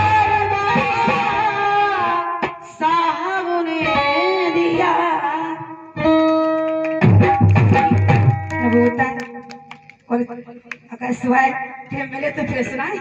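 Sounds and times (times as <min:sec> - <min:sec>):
wavering melody over a band: 0:00.0 - 0:02.4, 0:03.8 - 0:09.8
drum beats: 0:06.1 - 0:10.0.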